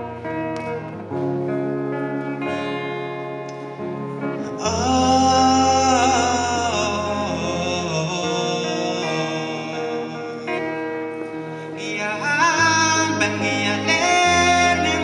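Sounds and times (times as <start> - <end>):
electric guitar picking notes: 0.0 - 15.0
man singing held note: 4.5 - 10.6.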